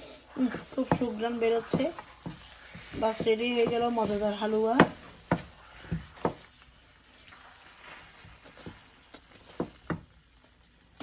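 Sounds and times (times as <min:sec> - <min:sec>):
wooden spatula stirring in pan: 0:00.0 - 0:11.0
spatula tapping pan: 0:00.4 - 0:06.8, 0:08.5 - 0:10.3.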